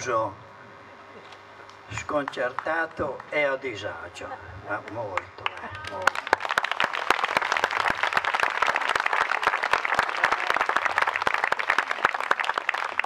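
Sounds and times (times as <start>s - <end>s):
crowd applauding: 2.0s - 2.8s, 5.2s - 13.0s.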